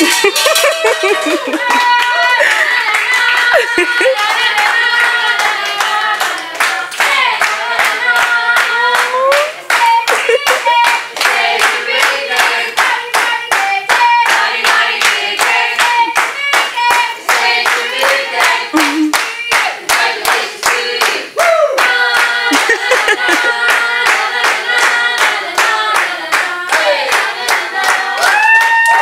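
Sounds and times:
people clapping in a beat: 0.0s - 29.0s
group singing: 0.8s - 28.6s.

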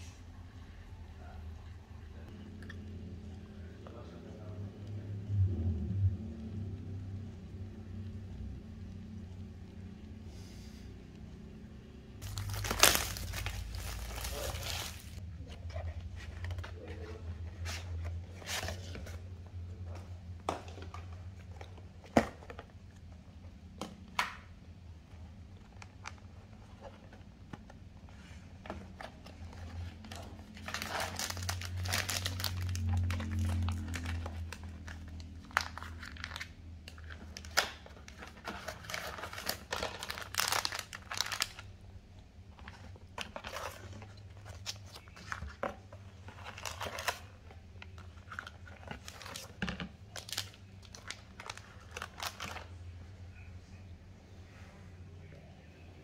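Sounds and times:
packaging crinkling and rustling: 12.2s - 15.2s, 25.4s - 52.9s.

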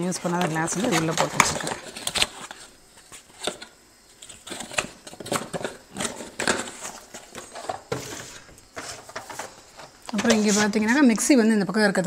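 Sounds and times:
boxes of glasses clicking: 3.4s - 8.1s.

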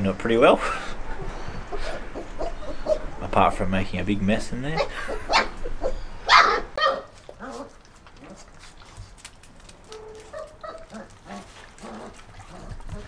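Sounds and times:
puppies yelping and whining: 1.2s - 3.2s, 4.8s - 8.5s.

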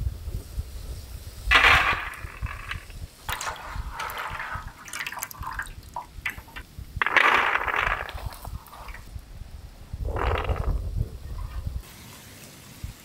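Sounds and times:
water sloshing and splashing: 1.5s - 10.8s.

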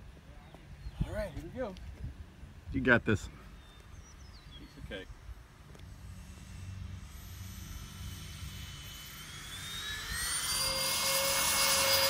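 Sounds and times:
electric ducted fans whining: 3.9s - 12.0s.

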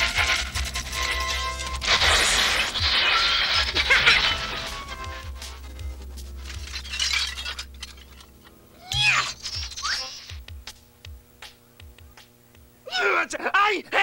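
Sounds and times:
crash of junk: 0.0s - 5.6s
background music: 0.0s - 8.9s.

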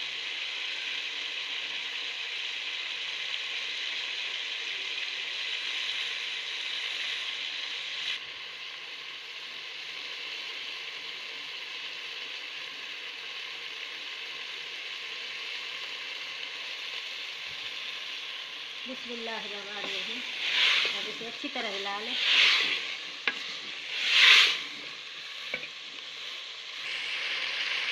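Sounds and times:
vegetables sizzling in oil: 0.0s - 27.9s.

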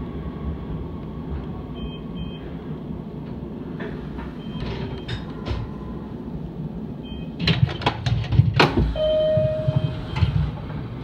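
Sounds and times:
low hum of stopped train: 0.0s - 11.0s
steady electronic beep: 7.0s - 7.3s, 9.0s - 10.0s.

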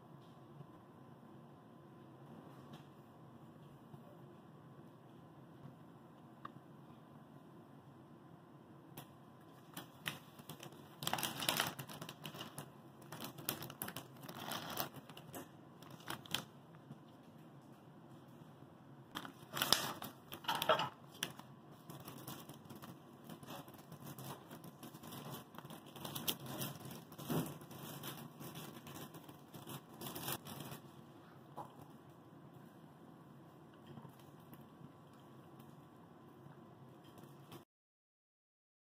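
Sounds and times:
plastic packaging crinkling: 9.6s - 16.6s, 19.1s - 31.0s.

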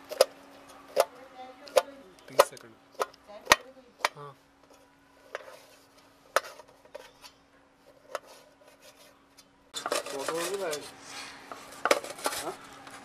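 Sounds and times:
knife scraping and chopping: 5.2s - 12.6s.

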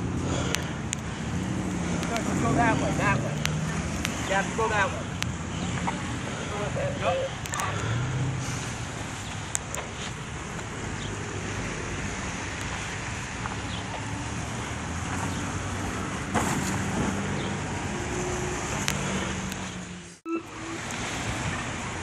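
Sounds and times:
vehicle engine and road noise: 0.0s - 22.0s
faint clicks: 0.5s - 2.3s.

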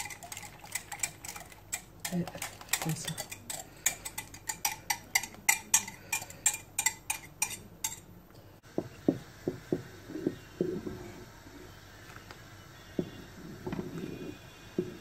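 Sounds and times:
metal whisk clinking against pot: 0.0s - 8.0s.

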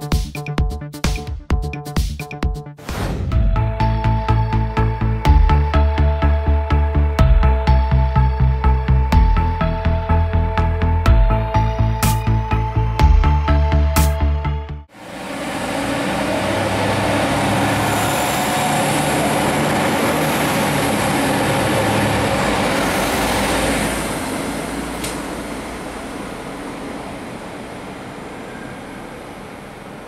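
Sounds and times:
electric train running past: 14.9s - 30.0s.

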